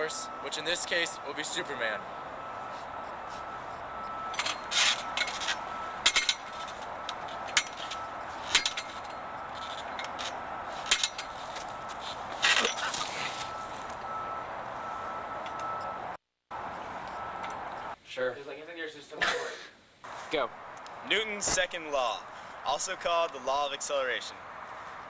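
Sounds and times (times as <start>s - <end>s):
knocks and clinks on metal bars: 4.3s - 11.8s
outdoor hiss: 17.9s - 20.5s.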